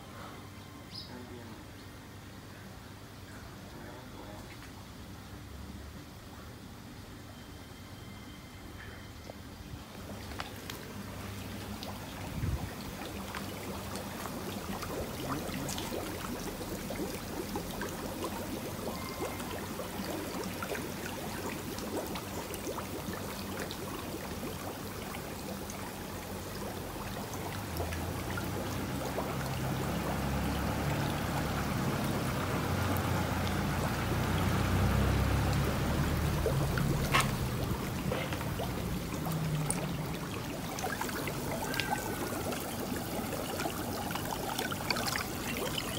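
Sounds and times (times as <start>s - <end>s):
water running and trickling: 9.9s - 45.9s.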